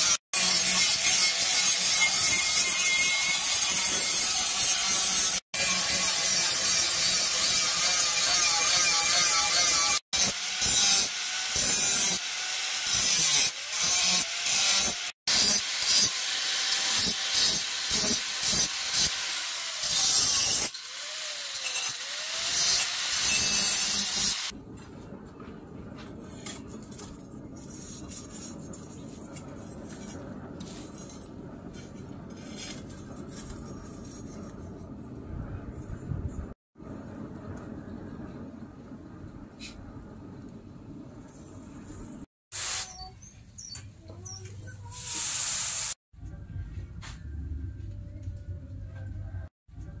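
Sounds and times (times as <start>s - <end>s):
angle grinder grinding steel: 0.0s - 24.5s.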